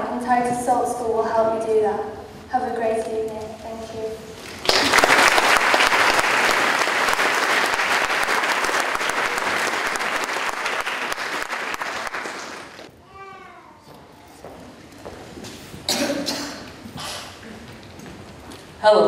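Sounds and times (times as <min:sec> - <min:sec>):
audience applauding: 0:04.4 - 0:12.9.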